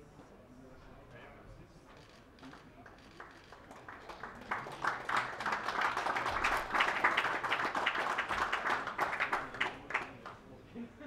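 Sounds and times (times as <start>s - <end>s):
audience applauding: 3.2s - 10.4s.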